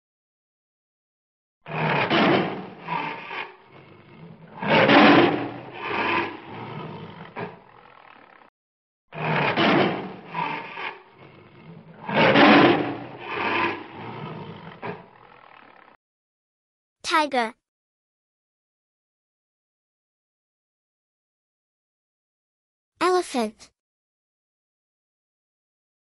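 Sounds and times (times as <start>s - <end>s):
tiger roaring and growling: 1.7s - 8.5s, 9.1s - 16.0s.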